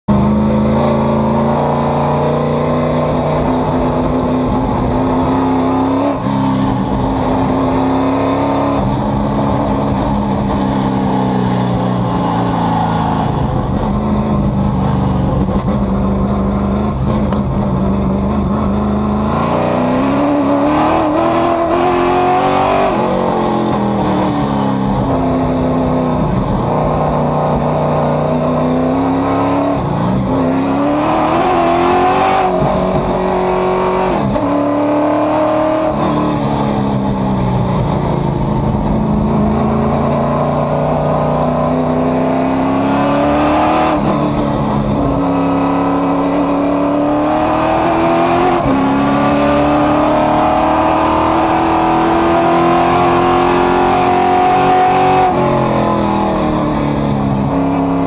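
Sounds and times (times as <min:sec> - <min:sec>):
race car engine accelerating: 0:00.1 - 0:58.0.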